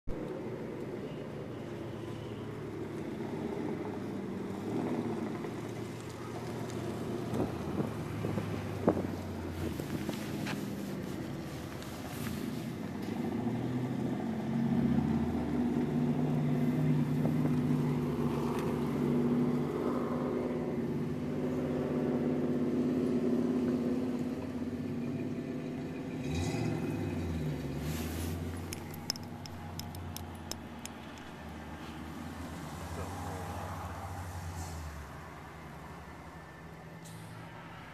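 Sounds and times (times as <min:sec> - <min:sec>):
vehicle engine humming: 0:00.1 - 0:37.9
light clicks: 0:28.6 - 0:31.4.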